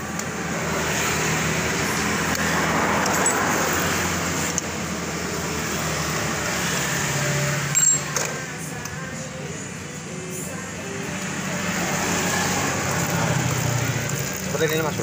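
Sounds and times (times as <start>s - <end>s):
vehicle passing by: 0.4s - 7.8s, 10.8s - 15.0s.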